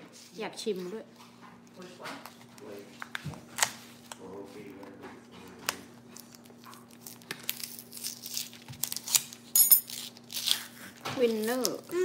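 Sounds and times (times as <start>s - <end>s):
plastic wrapper crinkling and tearing: 2.2s - 12.0s.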